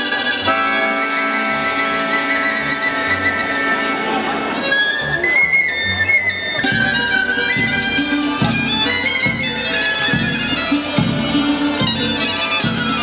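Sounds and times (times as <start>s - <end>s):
accordion: 0.0s - 13.0s
fiddle melody: 0.0s - 13.0s
hammered dulcimer: 0.0s - 13.0s
wind instrument: 0.0s - 13.0s
frame drum beat: 6.7s - 13.0s.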